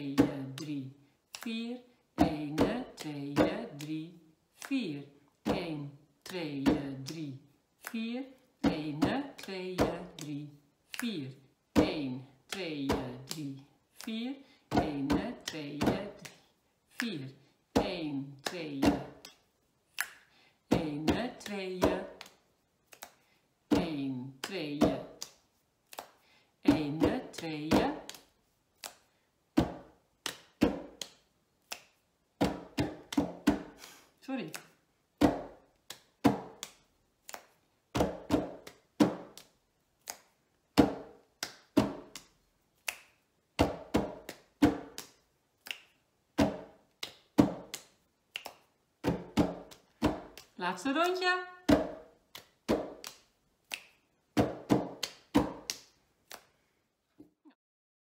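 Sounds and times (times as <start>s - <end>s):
hands clapping: 0.1s - 1.6s, 4.6s - 4.9s, 6.3s - 11.2s, 17.8s - 19.4s, 20.0s - 20.2s, 20.8s - 23.2s, 23.8s - 26.2s, 27.0s - 56.5s.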